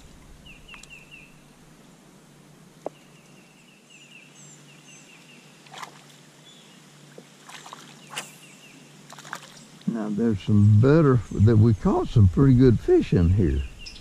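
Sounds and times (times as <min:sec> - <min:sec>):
songbird chirping: 0:00.0 - 0:01.6, 0:02.8 - 0:14.0
faint low hum: 0:04.4 - 0:14.0.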